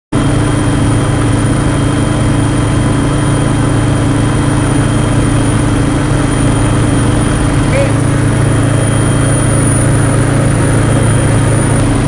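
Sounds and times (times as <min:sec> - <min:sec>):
aircraft engine humming: 0:00.2 - 0:12.0.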